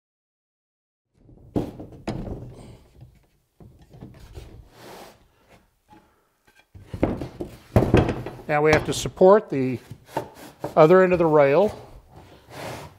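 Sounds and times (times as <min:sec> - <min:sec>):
saw rail sliding and rubbing: 0:04.0 - 0:06.7, 0:09.7 - 0:12.9.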